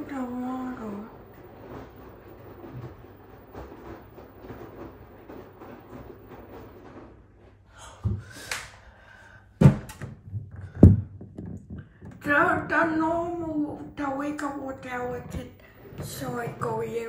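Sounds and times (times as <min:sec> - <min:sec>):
knocks and thunks: 0:01.2 - 0:07.3, 0:09.6 - 0:12.8.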